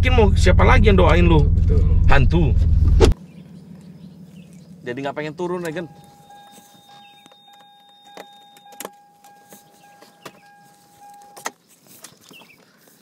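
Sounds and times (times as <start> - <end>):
high-pitched electronic warning tone: 5.4 - 11.5.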